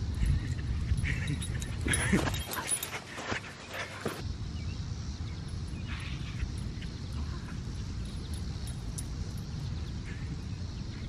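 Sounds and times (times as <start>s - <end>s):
wind buffeting microphone: 0.0s - 3.0s.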